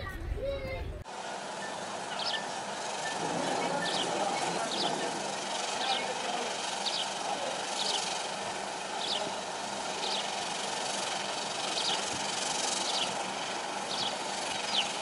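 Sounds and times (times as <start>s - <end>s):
sparrow chirping: 1.6s - 8.2s, 9.0s - 9.4s, 10.0s - 10.5s, 11.6s - 13.2s, 13.9s - 15.0s.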